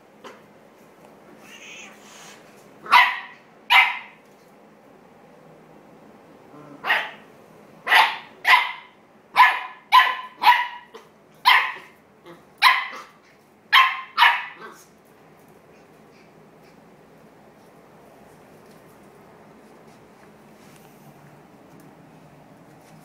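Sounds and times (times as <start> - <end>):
puppy barking: 2.8 - 4.2, 6.8 - 14.9.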